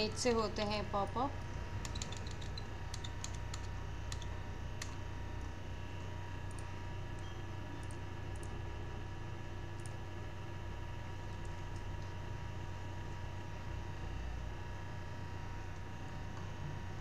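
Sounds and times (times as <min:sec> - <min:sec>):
steady low hum: 0:00.0 - 0:17.0
keyboard and mouse clicks: 0:01.8 - 0:05.0, 0:07.2 - 0:08.5.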